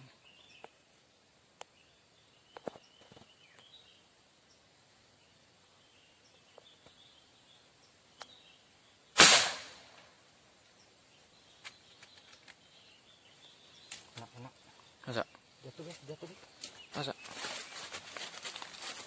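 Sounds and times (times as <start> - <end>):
air rifle shot: 9.2 - 10.0.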